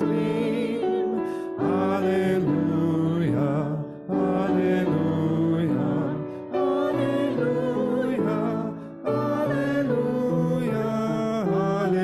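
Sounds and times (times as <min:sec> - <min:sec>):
voices singing a hymn: 0:00.0 - 0:12.0.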